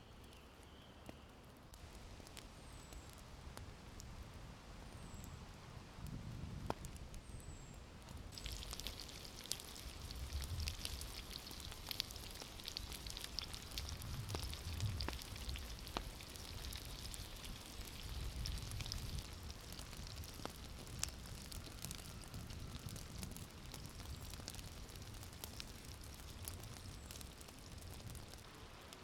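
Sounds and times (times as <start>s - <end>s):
burning wood crackling: 0.0s - 29.0s
sausages sizzling in a pan: 8.3s - 28.0s.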